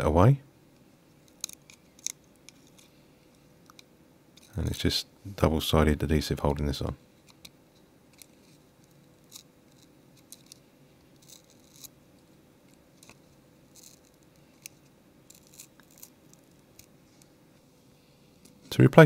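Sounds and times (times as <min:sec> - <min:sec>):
faint steady hum: 0:00.0 - 0:19.0
tweezers clicking and crackling: 0:01.2 - 0:02.8.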